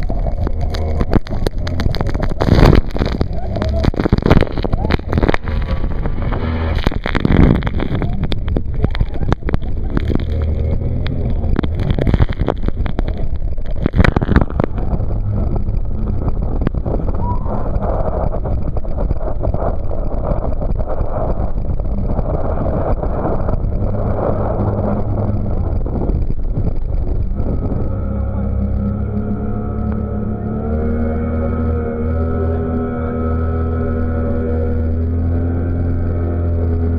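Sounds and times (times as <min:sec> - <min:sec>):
waves slapping over boat: 0:00.0 - 0:27.8
hard water splashes: 0:00.0 - 0:32.0
outboard motor drone: 0:00.0 - 0:36.9
water rushing: 0:00.0 - 0:36.9.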